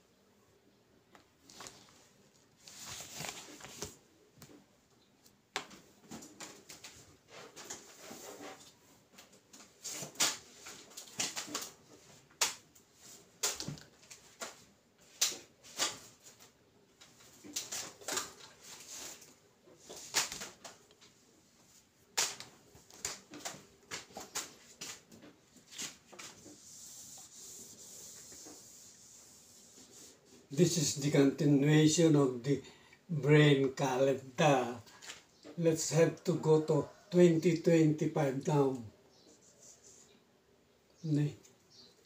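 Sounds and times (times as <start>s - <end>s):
eraser wiping a whiteboard: 25.7s - 30.5s.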